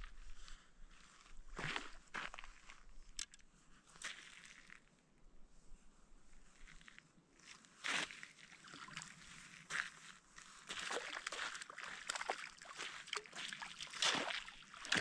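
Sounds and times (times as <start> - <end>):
water splashing and sloshing: 8.0 - 9.6, 10.7 - 15.0.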